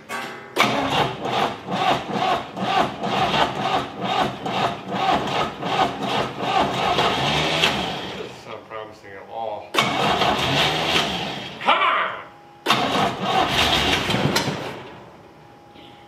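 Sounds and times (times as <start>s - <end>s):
starter cranking engine: 0.6s - 8.3s, 9.8s - 11.6s, 12.7s - 14.7s.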